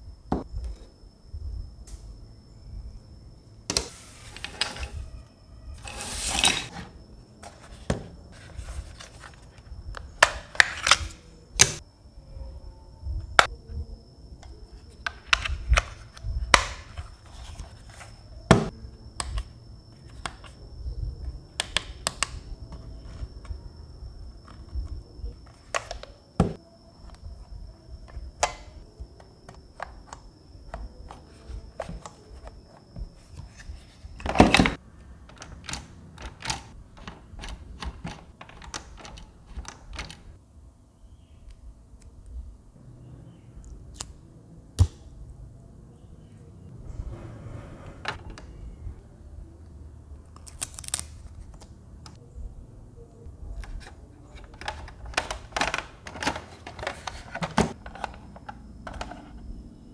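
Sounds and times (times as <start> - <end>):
faint steady high tone: 0.0 - 10.2, 11.1 - 21.6, 22.4 - 34.2
plastic handling clicks and knocks: 53.8 - 59.4.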